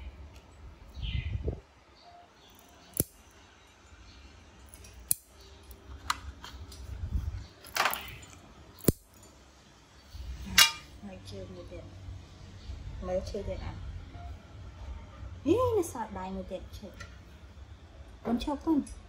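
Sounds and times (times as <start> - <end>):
nail clippers clicking: 2.9 - 3.2.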